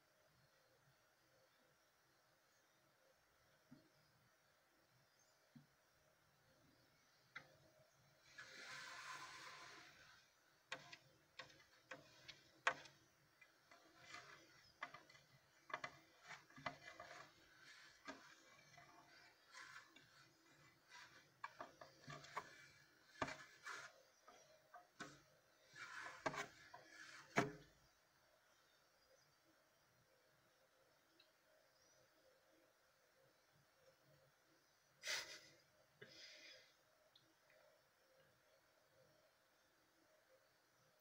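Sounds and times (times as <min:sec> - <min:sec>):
hands handling plastic terrarium: 0:08.2 - 0:27.7.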